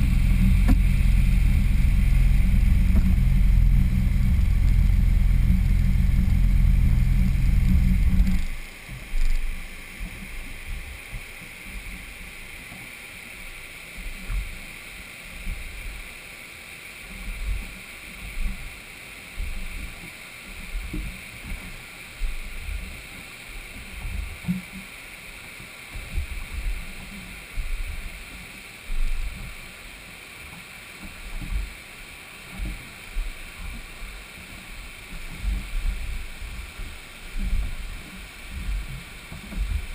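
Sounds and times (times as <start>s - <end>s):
low buffets: 0.0s - 10.9s
jet ski engine running: 0.0s - 39.9s
river water hissing: 0.0s - 39.9s.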